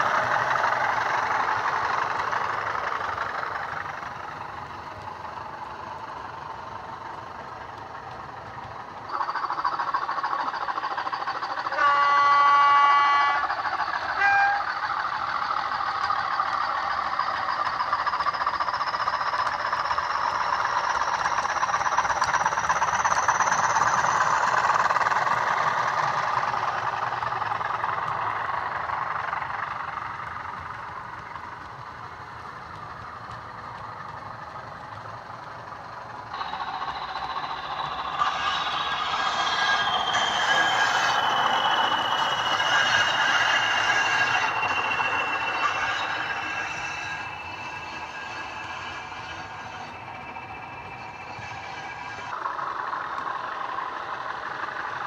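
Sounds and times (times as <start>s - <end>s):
diesel engine sound: 0.0s - 55.0s
turbocharger whistle: 11.6s - 16.8s, 36.3s - 52.4s
model train horn blast: 11.7s - 13.5s, 14.2s - 14.8s
short high horn toot: 14.2s - 14.8s.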